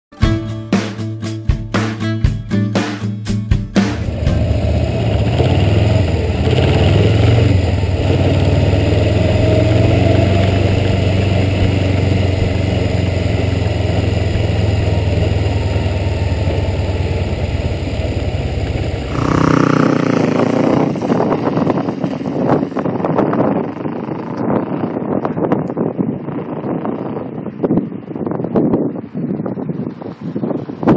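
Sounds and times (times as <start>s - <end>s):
motorcycle engine running: 3.7s - 29.0s
motorcycle riding past: 3.9s - 24.9s.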